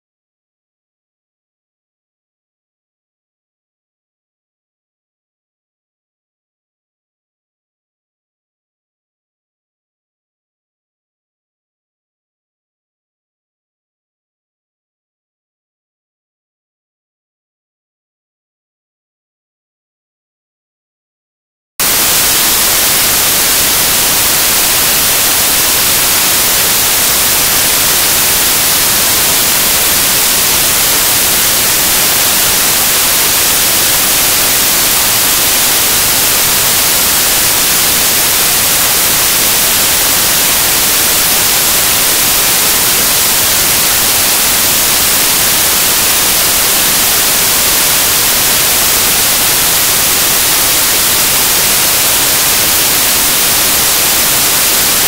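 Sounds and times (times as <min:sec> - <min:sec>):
white noise static hiss: 0:21.8 - 0:55.0.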